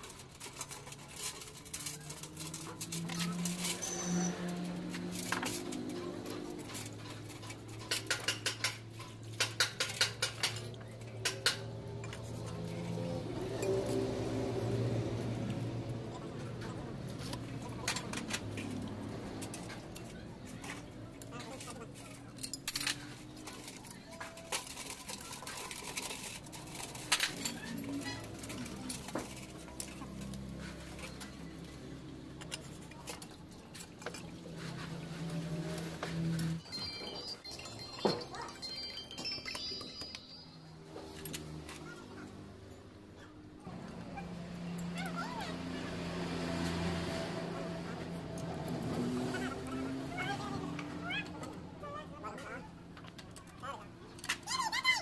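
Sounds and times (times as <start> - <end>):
metal knocks and clinks: 17.8 - 31.5, 36.3 - 41.8.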